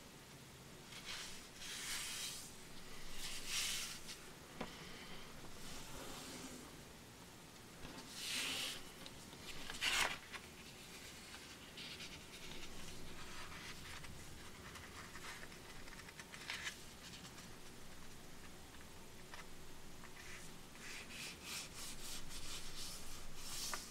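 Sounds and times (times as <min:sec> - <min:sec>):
paper rustling and crinkling: 0:07.8 - 0:17.7, 0:21.9 - 0:23.9.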